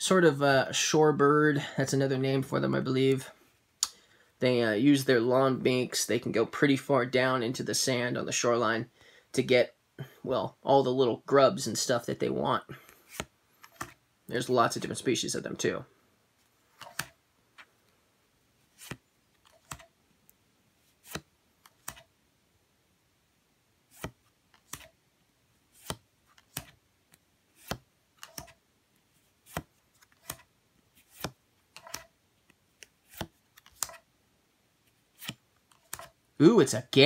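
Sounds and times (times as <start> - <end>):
cards clicking off a stack: 16.8 - 17.2.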